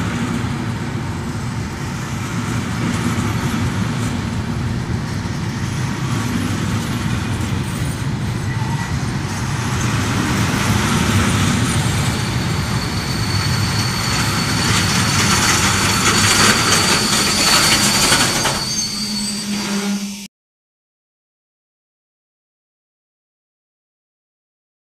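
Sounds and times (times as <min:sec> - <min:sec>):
freight train wheels rumbling on rail: 0:00.0 - 0:20.2
faint high-pitched squeal: 0:07.6 - 0:09.1, 0:11.5 - 0:20.3.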